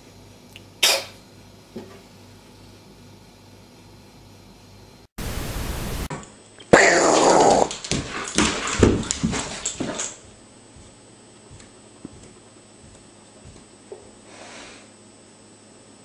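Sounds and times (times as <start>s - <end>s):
dog vocalising loudly: 6.7s - 7.8s.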